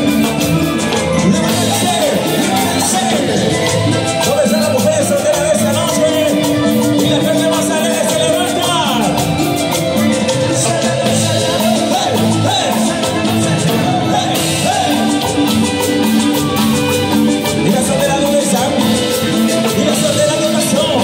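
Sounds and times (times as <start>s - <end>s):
people singing into microphones: 0.0s - 16.5s
live dance band playing: 0.0s - 21.0s.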